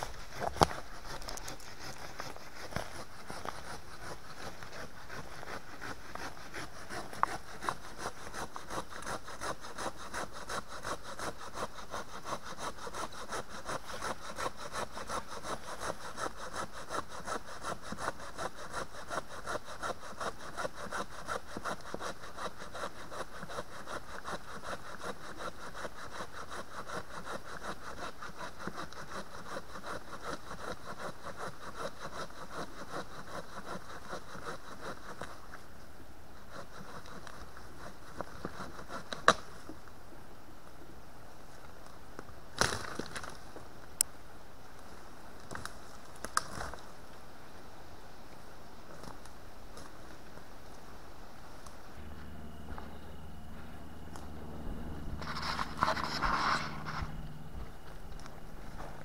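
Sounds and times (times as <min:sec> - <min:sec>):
hand saw cutting log: 0:00.0 - 0:35.4, 0:36.5 - 0:39.5, 0:55.2 - 0:57.2.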